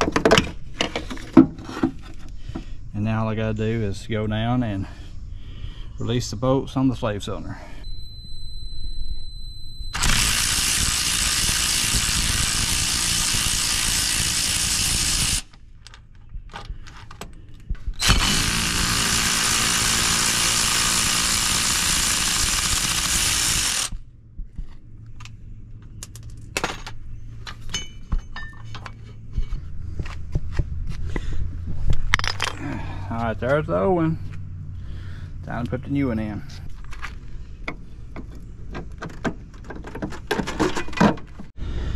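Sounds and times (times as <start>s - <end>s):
cordless power tool spinning: 9.9s - 15.5s, 18.0s - 24.0s.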